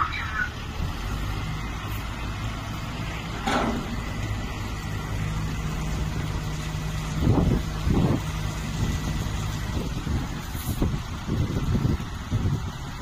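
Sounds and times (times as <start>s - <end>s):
diesel engine under load: 0.0s - 13.0s.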